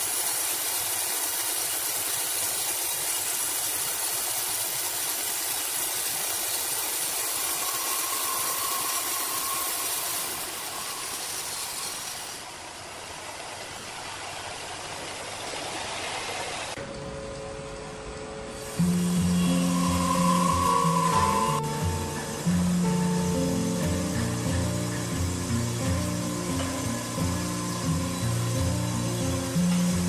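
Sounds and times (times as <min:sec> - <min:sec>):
sawmill machine running: 0:00.0 - 0:12.6, 0:18.5 - 0:30.0.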